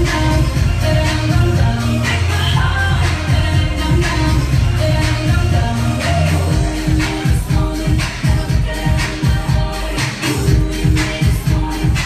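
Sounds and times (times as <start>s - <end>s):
pop music with singing: 0.0s - 12.0s.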